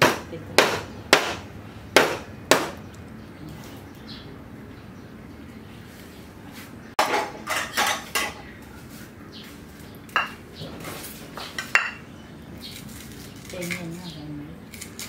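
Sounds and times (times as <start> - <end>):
dishes clattering and clinking: 7.0 - 8.6, 10.1 - 12.1.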